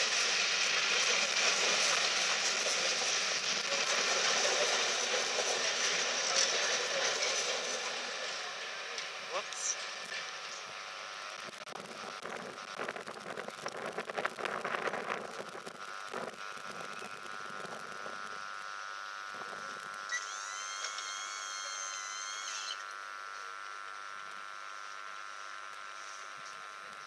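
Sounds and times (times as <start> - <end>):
train wheels clattering over rail joints: 0.0 - 8.4.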